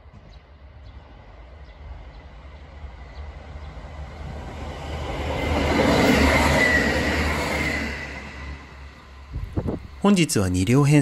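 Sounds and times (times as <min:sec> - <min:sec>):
train rumble and wheels on rails: 0:00.0 - 0:11.0.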